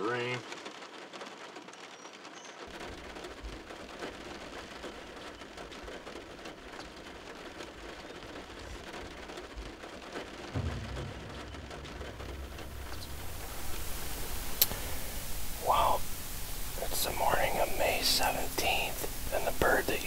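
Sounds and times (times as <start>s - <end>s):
rain pattering: 0.0s - 20.0s
low rumble: 10.5s - 17.2s.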